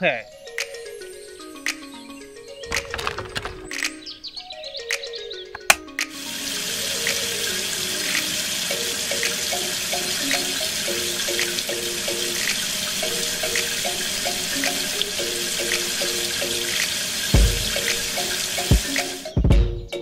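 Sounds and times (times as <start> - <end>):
water stream splashing onto sand: 6.0 - 19.2.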